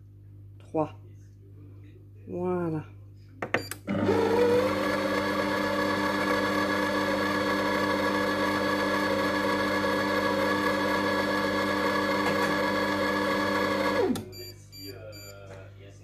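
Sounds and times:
multicooker motor whisking: 0:03.9 - 0:14.4.

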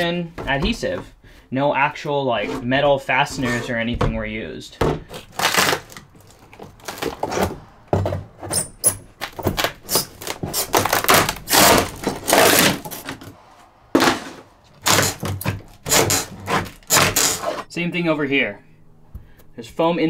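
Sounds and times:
panel ripping scrapes: 0:05.0 - 0:13.4, 0:14.0 - 0:17.7
wall panel cracking and snapping: 0:05.1 - 0:07.7, 0:09.2 - 0:13.4, 0:14.8 - 0:17.6.

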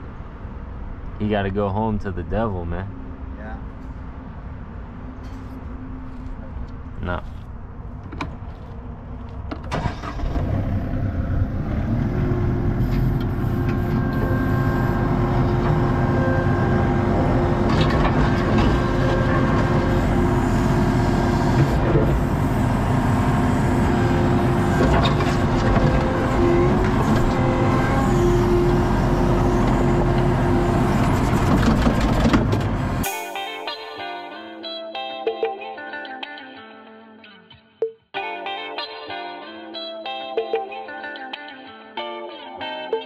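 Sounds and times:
diesel engine running under load: 0:07.7 - 0:33.1.

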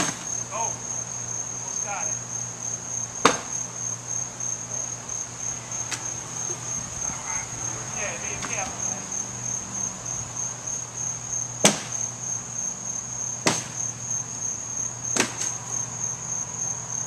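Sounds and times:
insects chirring: 0:00.0 - 0:17.0
hand tool striking wood: 0:03.2 - 0:03.5, 0:13.4 - 0:13.8.

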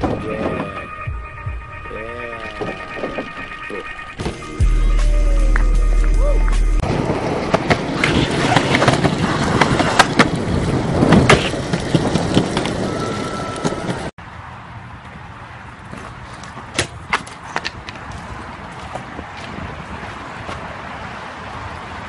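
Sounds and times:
bike tyres rolling on concrete: 0:06.8 - 0:14.1, 0:15.0 - 0:22.0.

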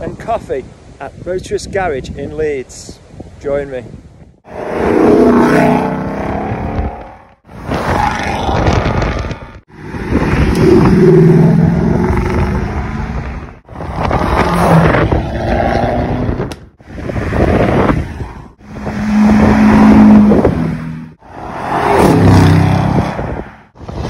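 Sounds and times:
cars accelerating past: 0:04.5 - 0:09.0, 0:09.7 - 0:23.8.

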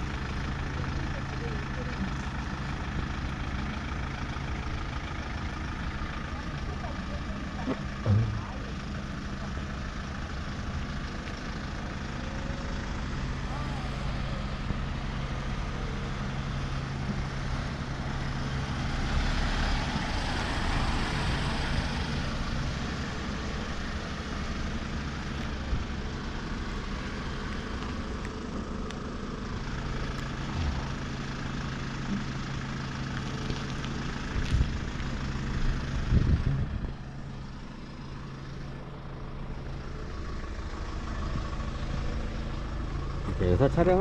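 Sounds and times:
traffic noise: 0:00.0 - 0:44.0
vehicle engine idling: 0:00.0 - 0:44.0
thumps: 0:07.7 - 0:08.7.

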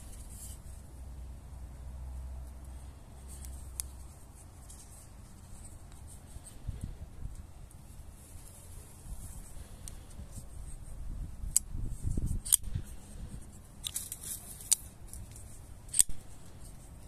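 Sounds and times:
handling rustle: 0:03.2 - 0:10.9, 0:12.0 - 0:17.0.

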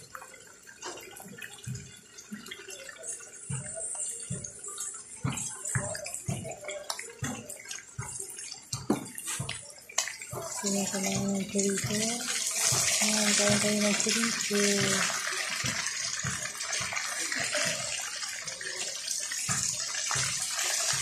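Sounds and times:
sausages sizzling in oil: 0:09.0 - 0:21.0.

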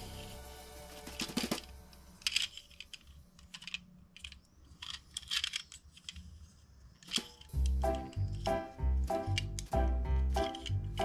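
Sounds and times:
toy car clicking and rattling: 0:01.2 - 0:08.6, 0:09.2 - 0:09.7, 0:10.3 - 0:11.0.

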